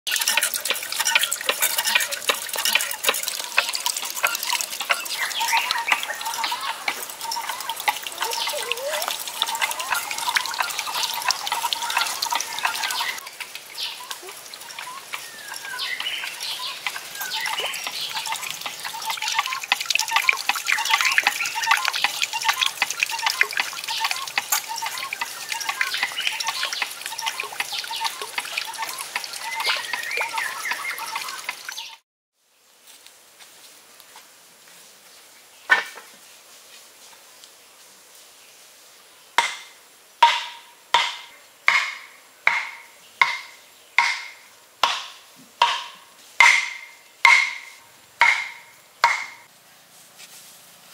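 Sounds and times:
birds chirping: 0.1 - 32.0
water trickling and splashing: 0.1 - 32.0, 40.3 - 49.5.

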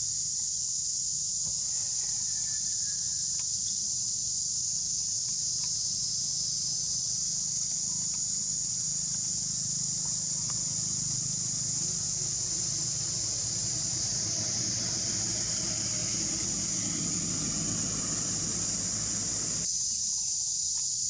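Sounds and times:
high-pitched insect chorus: 0.0 - 21.0
faint low hum: 10.2 - 19.7.

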